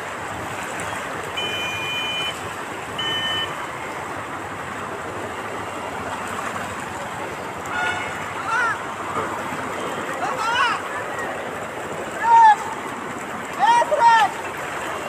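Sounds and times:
floodwater rushing: 0.0s - 15.0s
short high beeps: 1.4s - 2.4s, 3.0s - 3.6s.

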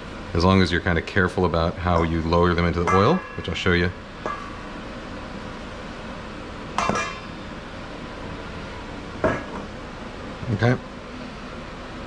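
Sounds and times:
steady background hiss: 0.0s - 12.0s
metal bowl clinking: 1.9s - 4.7s, 6.8s - 7.4s.

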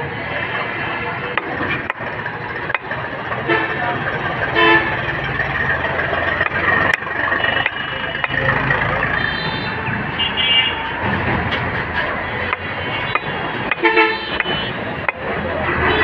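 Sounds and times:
passing vehicle engines: 0.0s - 16.0s
car horn tooting: 3.4s - 5.2s, 9.1s - 11.0s, 12.3s - 14.8s, 15.6s - 16.0s.

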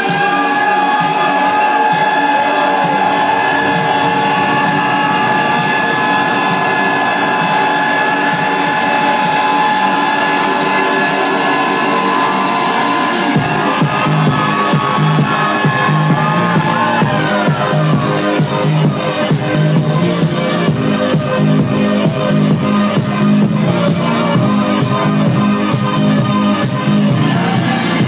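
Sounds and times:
high synth whine: 1.6s - 15.2s
low thumps: 2.7s - 10.1s.

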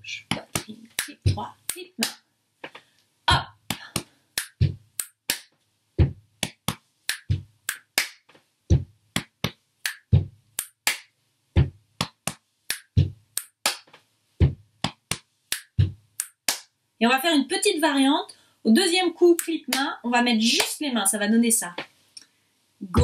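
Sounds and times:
hand clap: 0.3s - 2.9s, 3.7s - 14.0s, 14.8s - 16.7s
foot stomp and chest slap thumps: 6.0s - 6.7s, 8.7s - 9.3s, 11.6s - 12.3s, 13.0s - 13.8s, 14.4s - 15.2s, 15.8s - 16.0s.

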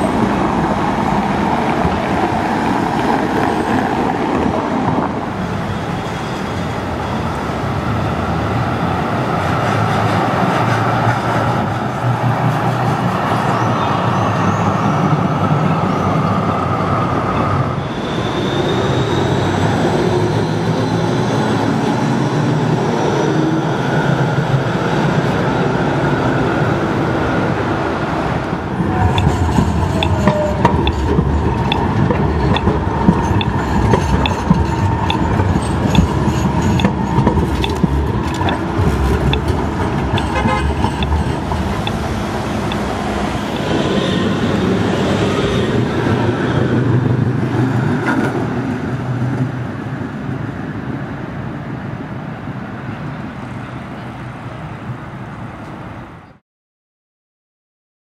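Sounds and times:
trams running: 0.0s - 56.3s
road traffic: 0.0s - 56.4s
tram passing close: 0.0s - 56.4s
steady ticking: 29.1s - 42.9s.

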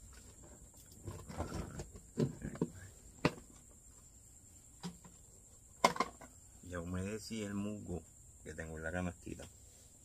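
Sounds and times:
soft rustle: 9.3s - 10.0s.

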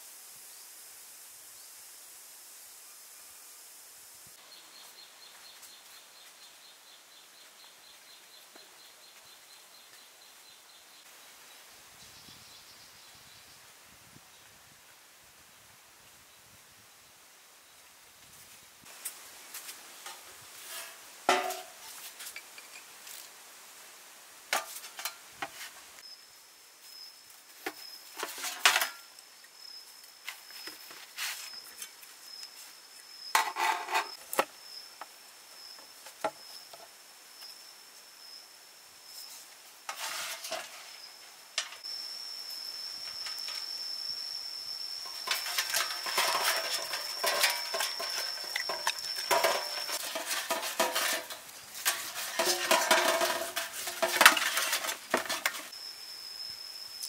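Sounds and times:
scraping and rubbing: 33.4s - 34.2s, 39.3s - 41.1s, 45.1s - 55.7s
insect high trill: 40.2s - 57.0s.

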